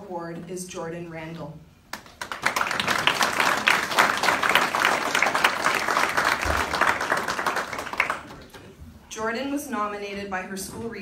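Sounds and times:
audience applauding: 2.0s - 8.7s.

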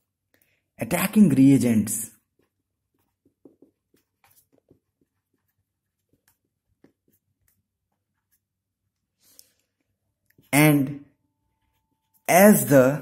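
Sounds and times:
marker pen writing on whiteboard: 2.1s - 10.6s.

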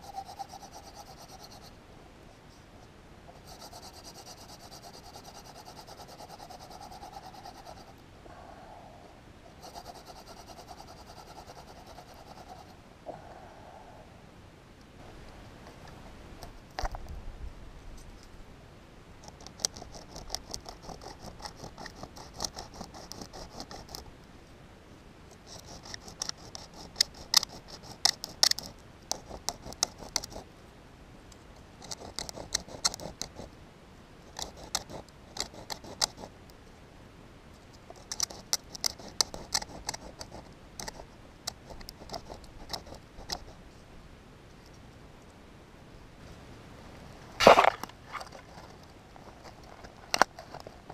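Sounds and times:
stick scraping against rock: 47.4s - 50.9s.

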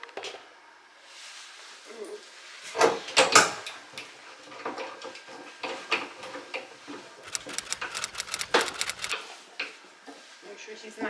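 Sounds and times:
sharp clicks of handle winding: 7.2s - 9.2s.

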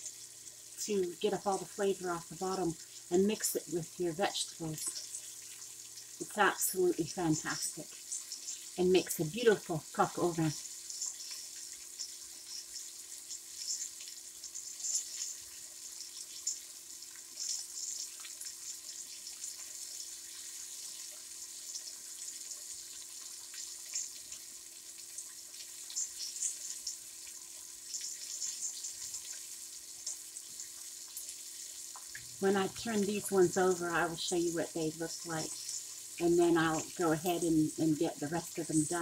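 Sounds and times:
chicken sizzling in oil: 0.0s - 39.0s.

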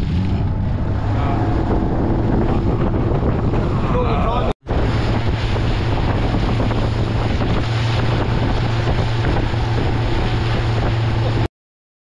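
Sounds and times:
motorboat engine drone: 0.0s - 11.5s
wind buffeting microphone: 0.0s - 11.5s.

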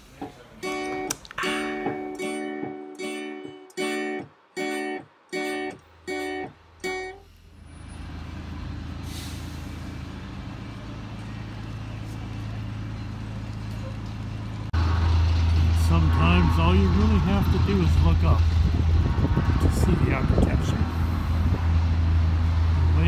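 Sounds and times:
street traffic rumble: 0.0s - 23.0s
acoustic guitar strumming chords: 0.6s - 7.2s.

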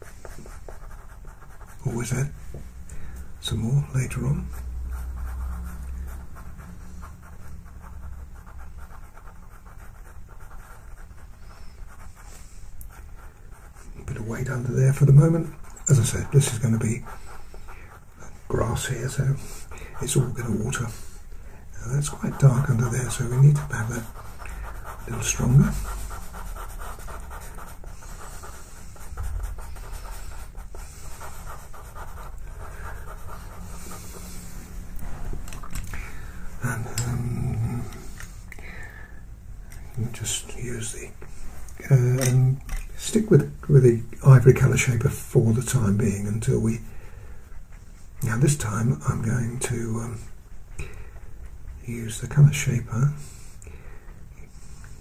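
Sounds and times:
pastel pencil scratching on paper: 0.0s - 2.3s, 3.8s - 21.2s, 21.8s - 34.7s
steady low hum: 0.0s - 55.0s.

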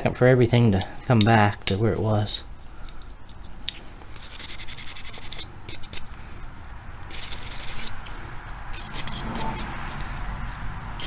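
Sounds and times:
wire brush scrubbing metal: 8.7s - 10.7s.

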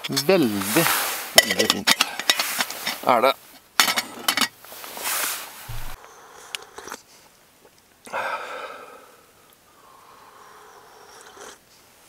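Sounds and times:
man slurping coffee: 5.7s - 7.0s, 10.4s - 11.7s.

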